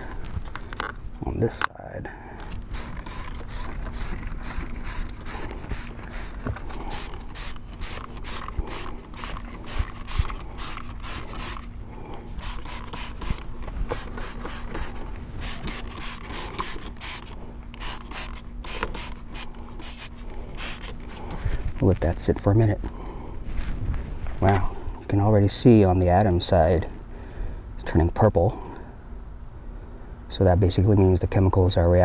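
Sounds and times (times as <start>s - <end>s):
spray bottle squirting: 2.7s - 11.7s, 12.4s - 21.0s.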